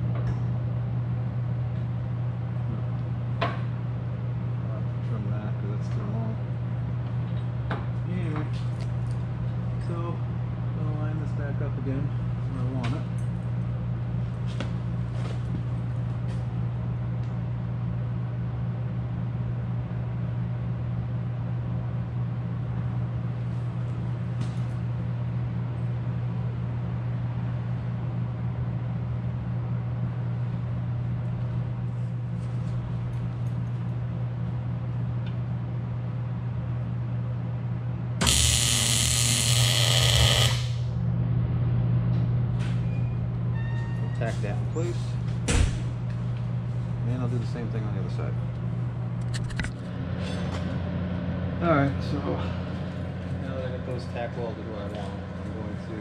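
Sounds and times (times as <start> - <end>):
welder crackling: 38.2 - 40.9.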